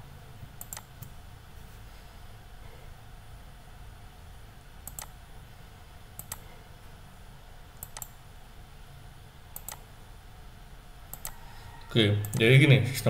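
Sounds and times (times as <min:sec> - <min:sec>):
faint low hum: 0:00.0 - 0:13.0
computer mouse clicking: 0:00.6 - 0:01.2, 0:04.8 - 0:05.2, 0:06.2 - 0:06.5, 0:07.7 - 0:08.2, 0:09.5 - 0:09.9, 0:11.1 - 0:11.4, 0:12.2 - 0:12.5.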